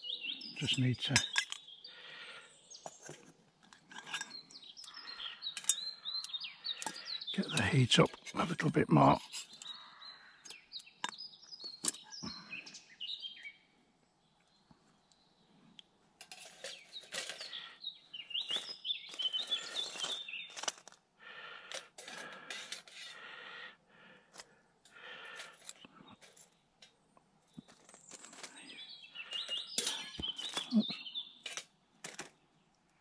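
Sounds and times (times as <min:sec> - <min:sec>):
songbirds singing: 0:00.0 - 0:33.0
light metallic clinks: 0:05.6 - 0:06.0.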